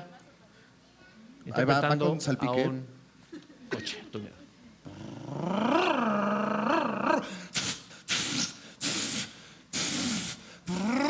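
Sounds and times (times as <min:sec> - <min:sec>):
man imitating engine revving: 0:04.9 - 0:09.2, 0:09.8 - 0:11.0
voiced hissing bursts: 0:07.4 - 0:10.7.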